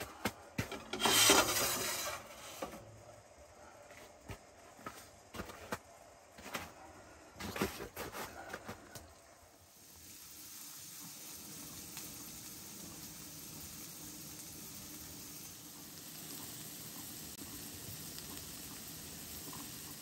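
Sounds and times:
potatoes sizzling in a skillet: 0.9s - 2.9s, 9.1s - 20.0s.

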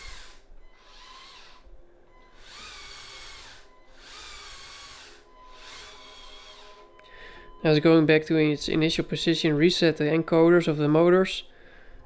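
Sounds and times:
small electric motors whining: 0.0s - 7.0s.

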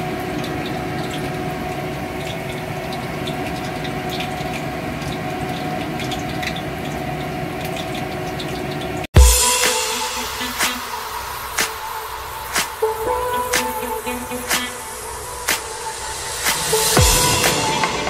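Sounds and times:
water boiling: 0.0s - 18.0s
loud music: 9.2s - 18.0s.

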